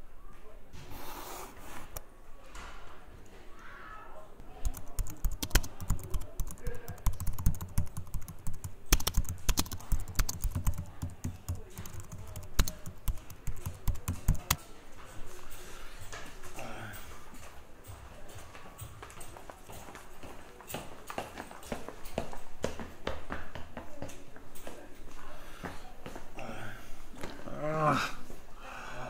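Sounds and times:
fast typing on keyboard: 4.6 - 14.6.

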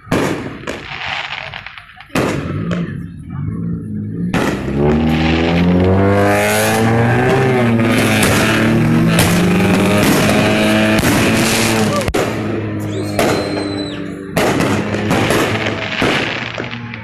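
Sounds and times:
firework cracks and pops: 0.0 - 3.0, 4.4 - 6.0, 8.0 - 17.0
firework bangs: 0.0 - 3.3, 3.9 - 17.0
loud pitched drone: 2.5 - 17.0.

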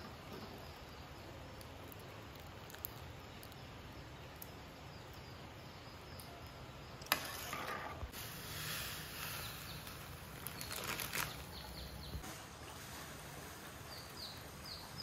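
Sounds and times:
faint outdoor background noise: 0.0 - 15.0
hiss of noise: 8.1 - 10.4, 12.2 - 15.0.

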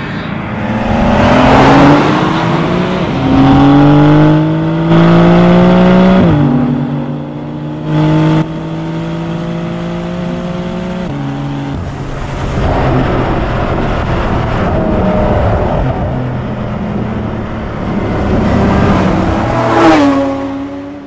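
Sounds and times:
sports car engine revving: 0.7 - 11.7.

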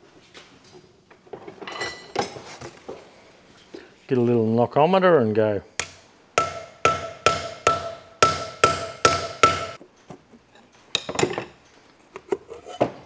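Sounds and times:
hammer striking steel can: 5.8 - 9.8.

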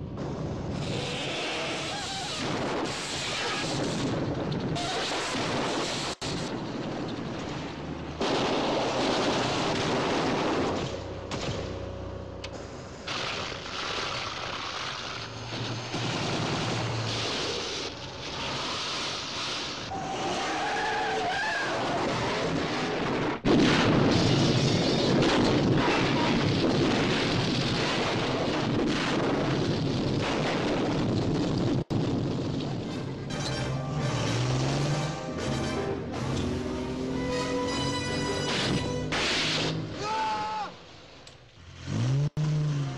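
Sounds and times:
car engines: 6.0 - 23.4, 32.5 - 42.9.

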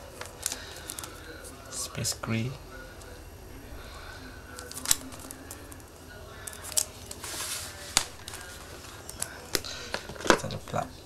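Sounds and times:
plastic film rustle: 0.0 - 1.8, 4.5 - 10.9.

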